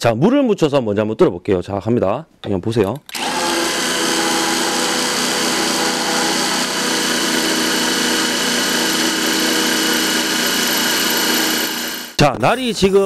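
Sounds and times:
cordless driver motor whine: 3.1s - 12.2s
drill bit grinding through tile: 3.1s - 12.2s.

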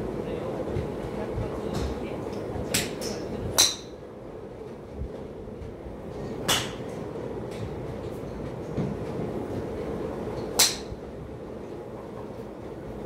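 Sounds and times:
steady background hum: 0.0s - 13.0s
golf club striking ball: 2.8s - 3.9s, 10.6s - 10.9s.

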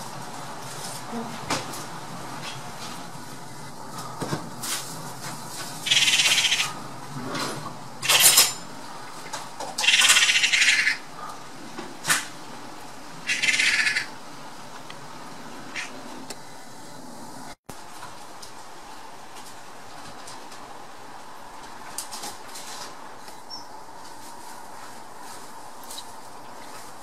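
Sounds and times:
magpies harsh rattling chatter: 5.8s - 6.9s, 8.0s - 11.5s, 13.2s - 14.2s, 15.7s - 16.0s.

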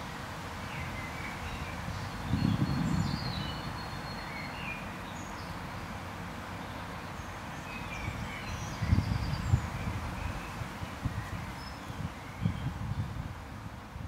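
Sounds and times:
small birds chirping: 0.6s - 6.0s, 6.6s - 13.2s.

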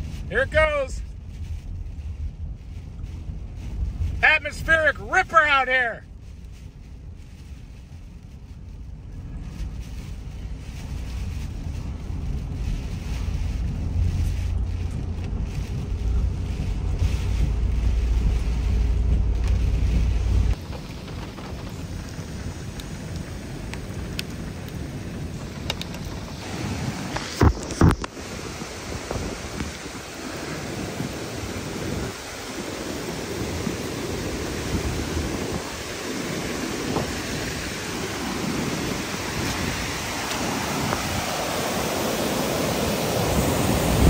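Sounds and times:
rain: 0.0s - 44.0s
creek rushing: 20.2s - 44.0s.

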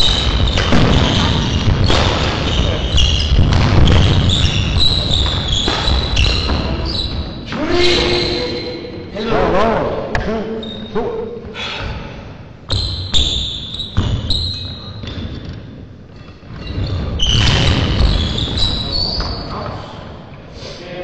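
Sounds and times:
shoes squeaking on court floor: 0.0s - 9.1s, 12.7s - 19.8s.

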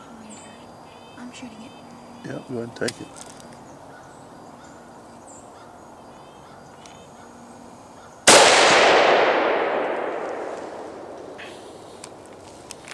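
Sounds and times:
gunshot with echo: 8.3s - 11.5s.

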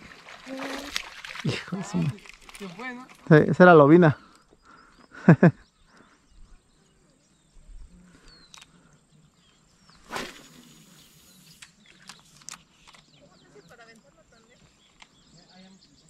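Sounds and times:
faint bird chirps: 4.1s - 16.0s
fishing rod cast swish: 10.0s - 11.4s
fishing line hissing off reel: 10.0s - 12.9s.

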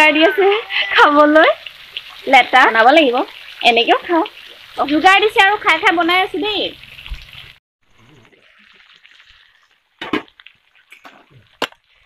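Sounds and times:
curry sizzling in metal pan: 0.1s - 7.6s.

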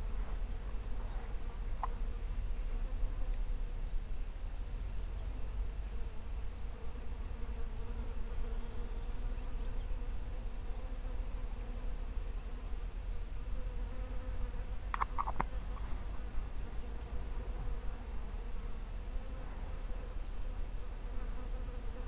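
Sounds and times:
insect buzzing: 0.0s - 22.0s
short clicks: 14.9s - 15.5s.

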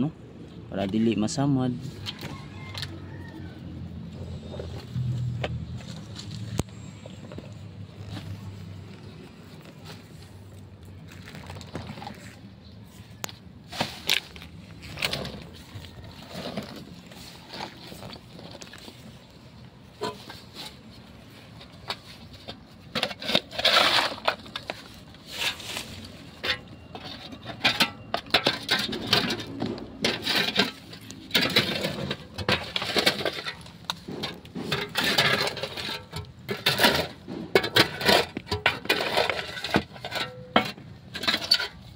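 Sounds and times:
shovel scraping concrete rubble: 4.2s - 41.9s
concrete chunks knocking and clinking: 26.3s - 41.9s.

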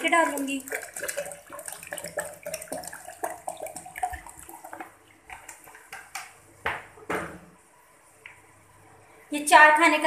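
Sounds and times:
water pouring into jug: 0.0s - 5.8s.

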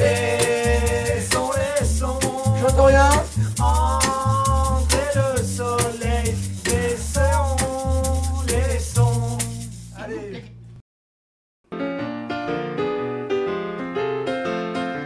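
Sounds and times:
group singing in unison: 0.0s - 2.8s, 3.6s - 9.4s
maraca shaking: 0.0s - 10.4s
bass line: 0.0s - 10.8s.

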